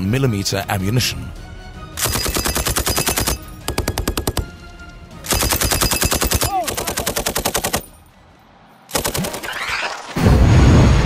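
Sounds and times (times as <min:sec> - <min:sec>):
machine gun bursts: 0:02.0 - 0:04.4, 0:05.3 - 0:07.9.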